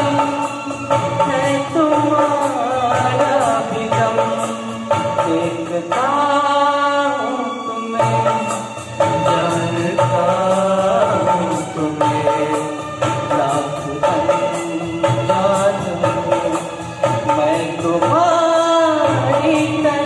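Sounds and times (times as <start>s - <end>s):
man singing into microphone: 0.0s - 20.0s
music with regular beat: 0.0s - 20.0s.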